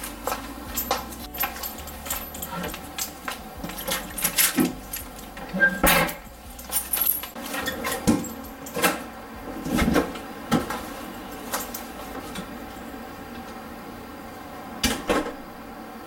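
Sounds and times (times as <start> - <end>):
keys jingling: 0.0 - 9.8, 10.7 - 13.1.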